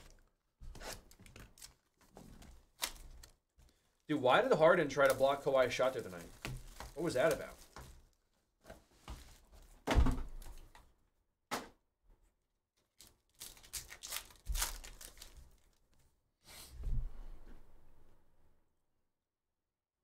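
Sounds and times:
foil wrapper crinkling and tearing: 0.0s - 8.2s, 12.8s - 15.9s.

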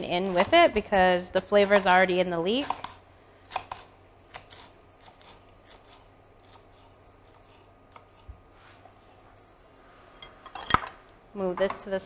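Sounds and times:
knife cutting on wooden board: 2.6s - 8.3s.

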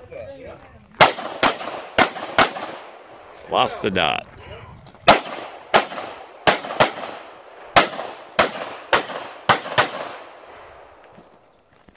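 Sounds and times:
pistol shots with echo: 1.0s - 3.1s, 5.0s - 11.1s.

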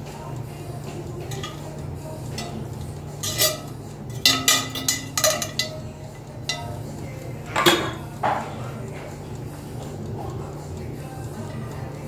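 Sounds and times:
steady low hum: 0.0s - 12.0s
sharp clinks and knocks: 1.3s - 6.9s.

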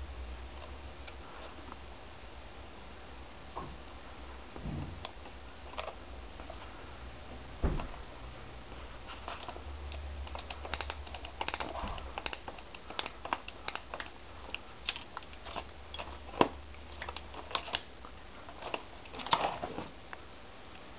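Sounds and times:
strapping tool metal clicks: 9.4s - 17.9s, 18.6s - 19.6s.

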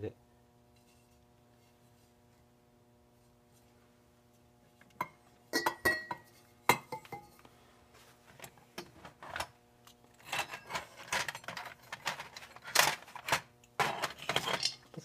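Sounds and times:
metal parts knocking on workbench: 10.2s - 14.9s.

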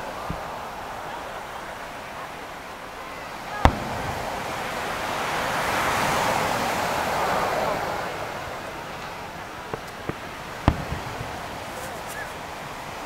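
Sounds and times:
murmur of crowd voices: 0.0s - 13.0s
surf: 0.0s - 13.0s
firework bang: 3.5s - 12.4s.

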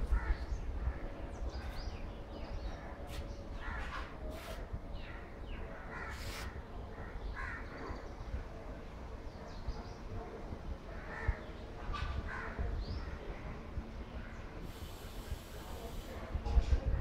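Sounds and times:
crows cawing: 5.2s - 7.8s, 12.3s - 12.6s.

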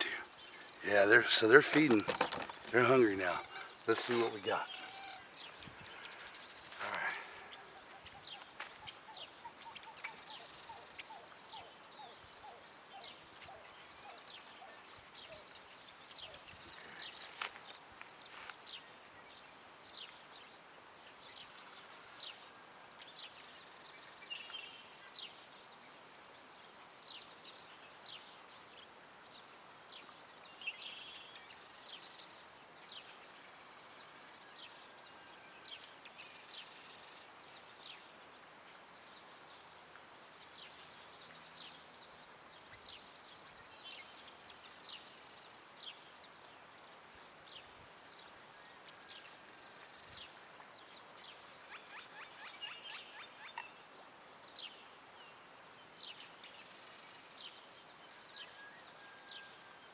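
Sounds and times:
faint bird chirps: 0.0s - 20.5s, 47.5s - 59.9s.

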